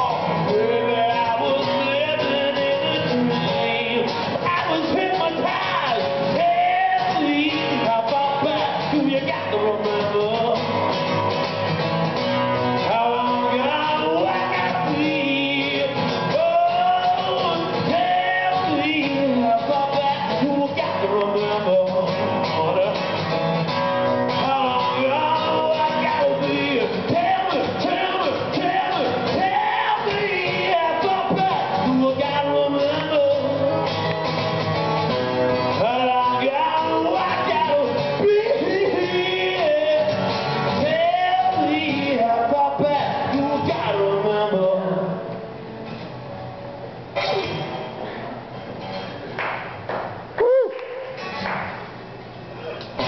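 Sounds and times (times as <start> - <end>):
man singing: 0.0 - 11.0, 12.7 - 23.4, 24.1 - 34.1, 35.4 - 45.4
acoustic guitar strumming: 0.0 - 53.0.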